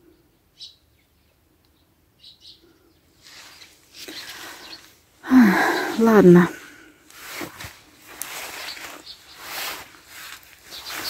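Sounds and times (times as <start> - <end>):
small birds chirping: 0.0 - 11.0
rustling movement: 3.2 - 5.0, 6.0 - 11.0
short human vocal sound: 5.2 - 6.6.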